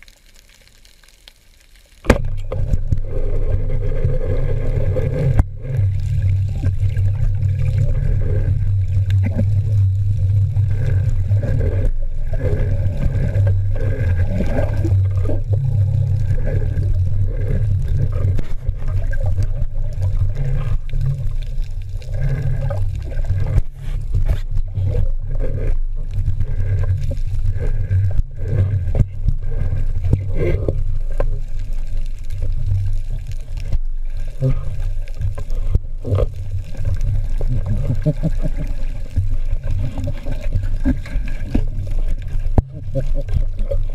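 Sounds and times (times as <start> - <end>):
faint ticks and gurgles: 0.0 - 43.9
underwater water rumble: 0.0 - 43.9.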